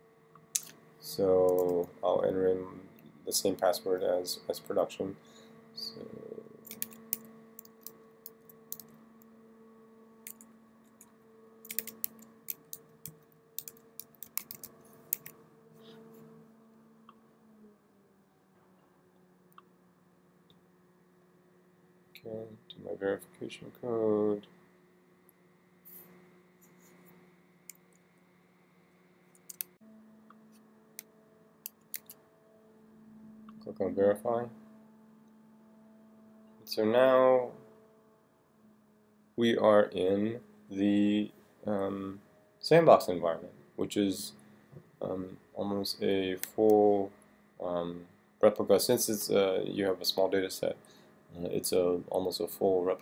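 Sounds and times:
faint steady hum: 0.0s - 53.0s
keyboard typing clicks: 1.5s - 1.9s, 6.6s - 8.9s, 10.2s - 10.5s, 11.6s - 15.4s, 29.4s - 29.7s, 31.0s - 32.2s.

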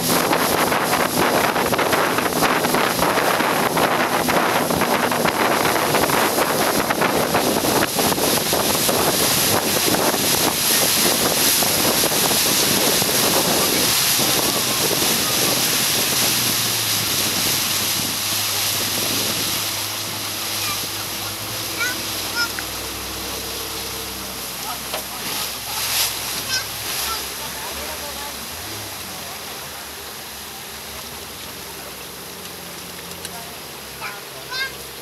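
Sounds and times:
wind buffeting microphone: 0.0s - 27.6s
boat engine running: 0.0s - 35.0s
water rushing along hull: 0.0s - 35.0s.

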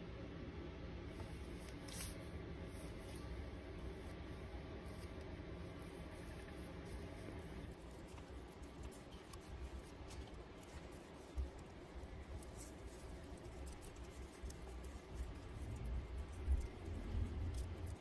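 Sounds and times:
fingers rubbing and scraping grease: 4.9s - 18.0s.

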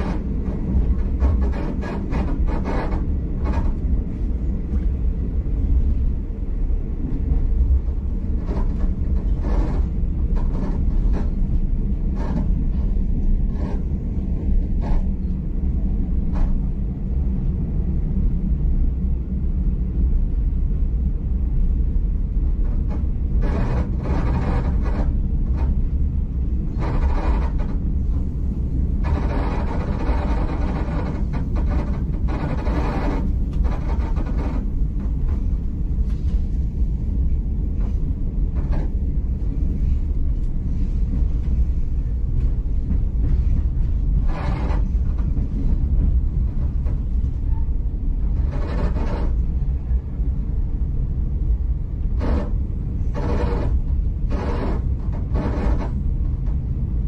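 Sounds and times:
train rumble inside carriage: 0.0s - 57.0s
wheel and track noise: 22.3s - 57.0s.

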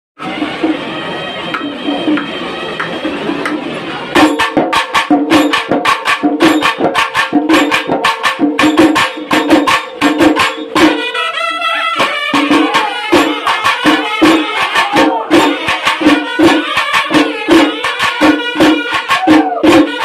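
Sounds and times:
reed horns playing melody: 0.2s - 4.1s, 10.4s - 20.0s
fast drum and jingle beat: 0.2s - 20.0s.

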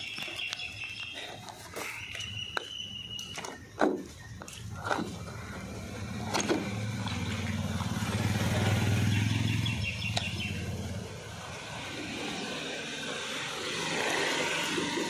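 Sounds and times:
vehicle engine hum: 3.4s - 15.0s.

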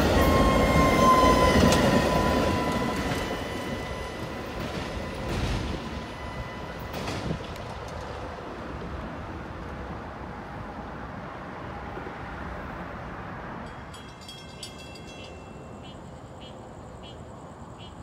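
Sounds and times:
train wheels rumbling on rail: 0.0s - 12.1s.

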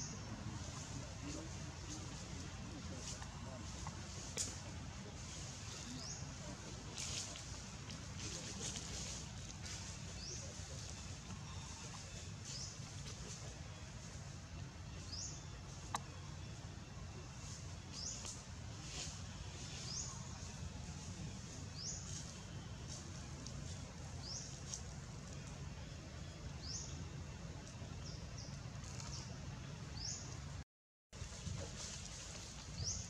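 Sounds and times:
low outdoor rumble: 0.0s - 30.6s.

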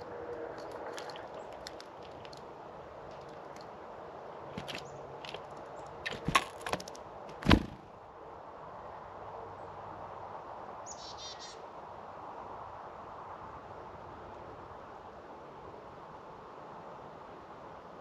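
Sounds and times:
thump on feeder: 4.6s - 4.8s, 6.1s - 7.8s.

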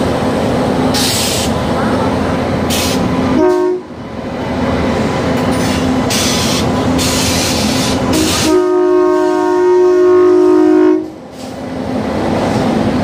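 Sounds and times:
train rumbling: 0.0s - 13.0s
train horn: 3.3s - 4.0s, 7.8s - 11.2s.

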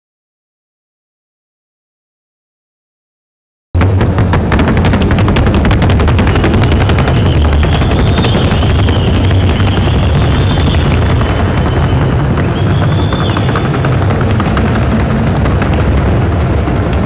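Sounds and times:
horse hooves drumming on board: 3.8s - 17.0s.

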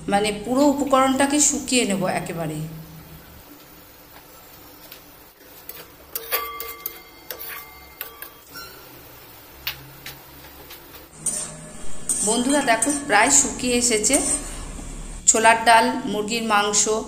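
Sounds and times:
metal spatula scraping a pan: 5.4s - 9.1s, 11.2s - 14.7s.

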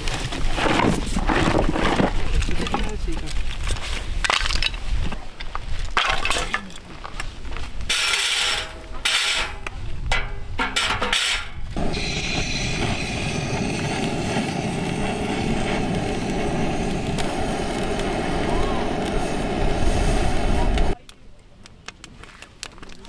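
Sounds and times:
steady rushing roar: 11.7s - 21.0s.

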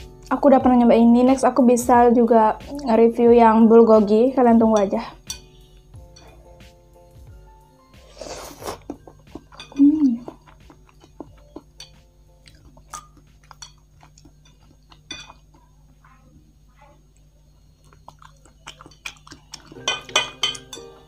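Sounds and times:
soft chewing: 8.0s - 20.7s
chopsticks clicking against bowl: 8.9s - 15.6s.

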